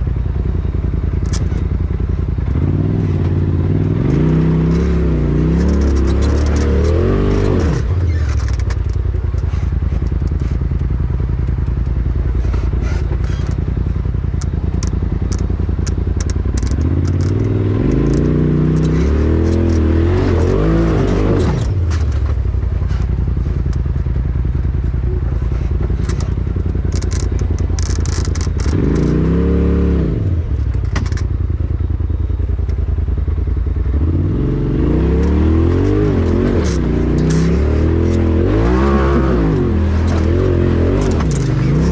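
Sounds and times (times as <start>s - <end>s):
off-road vehicle engine revving: 0.0s - 41.9s
sharp clicks and scrapes: 1.2s - 1.7s, 4.1s - 24.0s, 25.3s - 29.5s, 30.2s - 31.4s, 35.1s - 41.9s.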